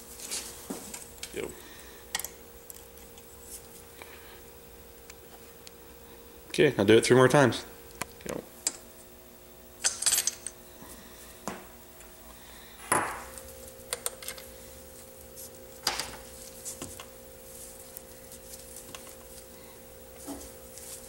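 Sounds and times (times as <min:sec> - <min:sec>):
faint steady hum: 0:00.0 - 0:21.0
metal parts and tools clinking: 0:09.8 - 0:10.6.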